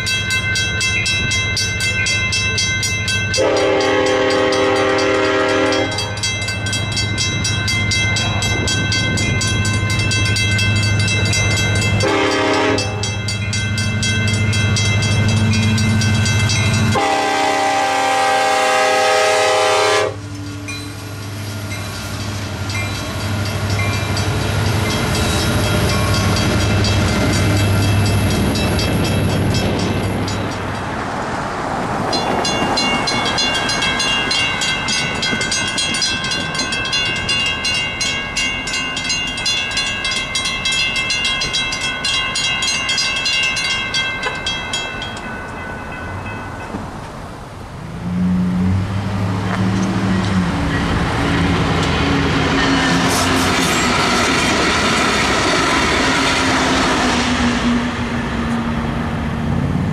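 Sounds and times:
railroad crossing bell ringing: 0:00.0 - 0:58.8
locomotive engine drone: 0:00.0 - 0:59.9
train wheels rolling: 0:00.0 - 0:59.9
locomotive horn: 0:03.4 - 0:06.2, 0:12.0 - 0:13.1, 0:16.8 - 0:20.3, 0:48.0 - 0:50.4.

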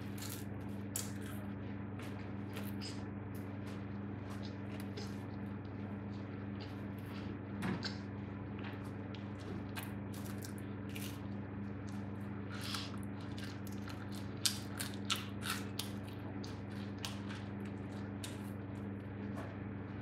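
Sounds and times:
bread being torn apart: 0:00.0 - 0:01.5.

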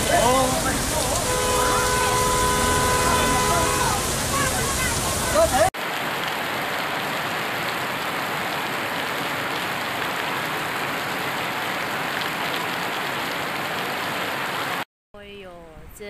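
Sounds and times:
heavy rain on wet road: 0:00.0 - 0:14.8.

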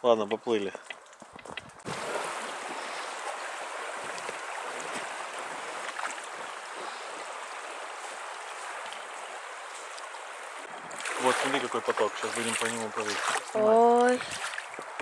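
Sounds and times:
river rushing over stones: 0:01.8 - 0:15.0.

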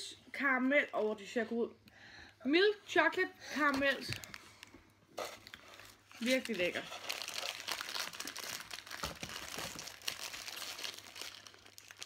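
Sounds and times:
candy wrapper crinkling: 0:03.6 - 0:12.0.

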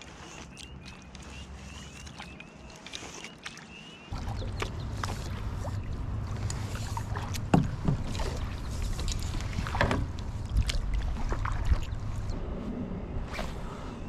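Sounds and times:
kayak paddle splashing in water: 0:00.0 - 0:12.3
wind rumble on microphone: 0:04.1 - 0:14.0.

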